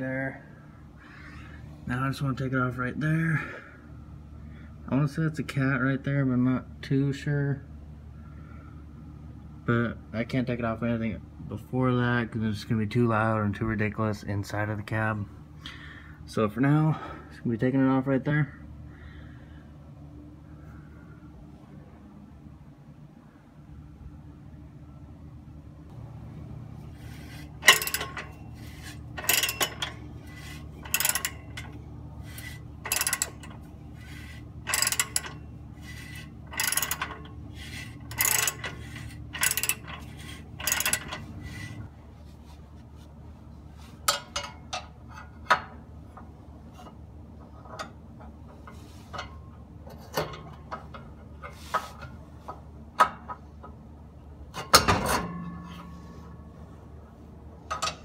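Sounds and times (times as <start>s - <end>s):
low steady hum: 0.0s - 58.0s
ratchet wrench clicking: 27.4s - 41.8s.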